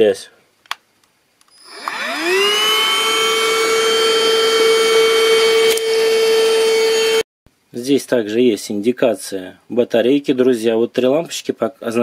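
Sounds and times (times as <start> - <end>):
vacuum motor whine: 1.5 - 7.2.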